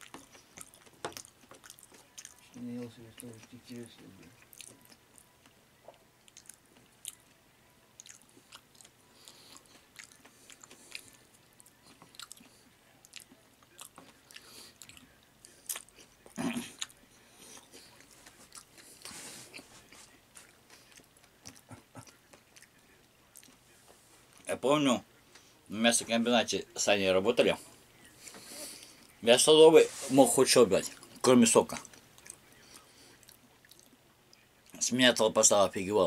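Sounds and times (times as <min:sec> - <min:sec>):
person chewing wetly: 0:00.0 - 0:02.6, 0:04.2 - 0:07.4, 0:08.0 - 0:23.7, 0:31.8 - 0:34.8.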